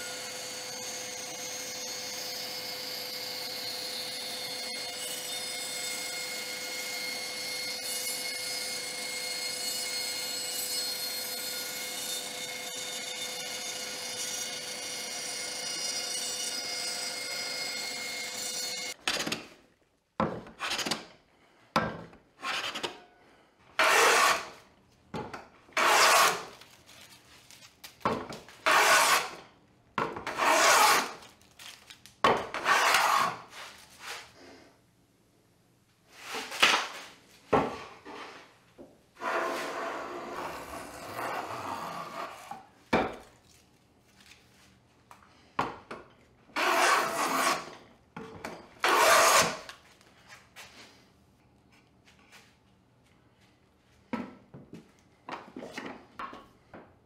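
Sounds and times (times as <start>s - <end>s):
bandsaw whining: 0.0s - 19.0s, 23.8s - 24.6s, 25.8s - 26.6s, 46.6s - 47.8s, 48.8s - 49.7s
hand plane strokes on wood: 23.8s - 24.5s, 46.6s - 47.7s, 48.8s - 49.7s.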